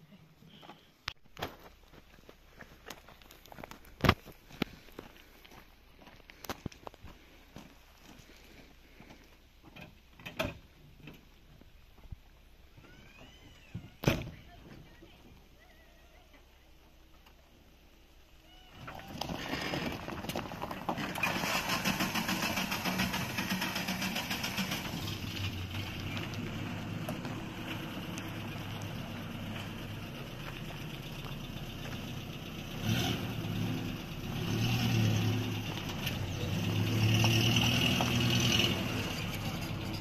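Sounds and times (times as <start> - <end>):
truck engine starting and running: 18.9 - 40.0.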